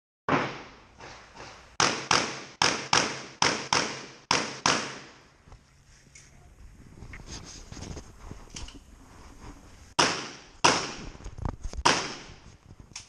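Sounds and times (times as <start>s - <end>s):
pistol shots echoing: 1.8s - 5.2s, 10.0s - 11.0s, 11.9s - 12.3s.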